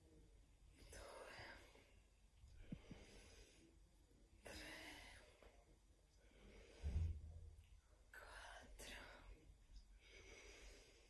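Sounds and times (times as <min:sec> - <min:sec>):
person breathing: 0:00.9 - 0:03.8, 0:06.2 - 0:07.5, 0:09.0 - 0:11.0
low thump: 0:06.8 - 0:07.4.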